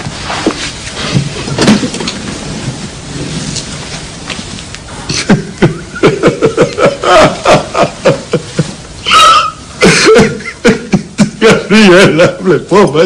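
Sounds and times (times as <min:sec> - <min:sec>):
man sobbing loudly: 0:05.1 - 0:12.6.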